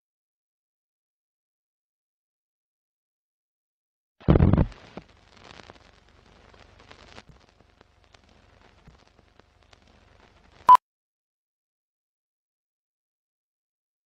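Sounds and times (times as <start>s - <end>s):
clicks and pops: 4.2s - 5.8s
old film crackle hiss: 4.2s - 10.7s.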